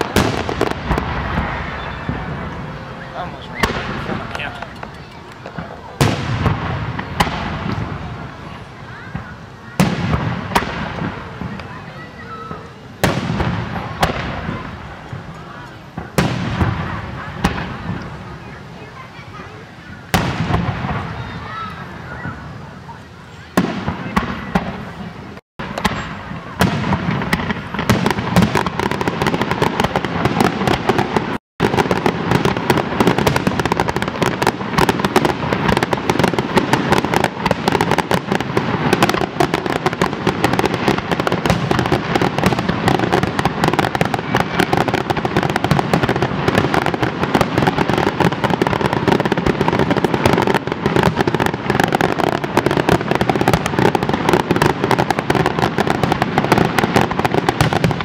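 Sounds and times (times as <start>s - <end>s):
fireworks bursting: 0.0s - 58.0s.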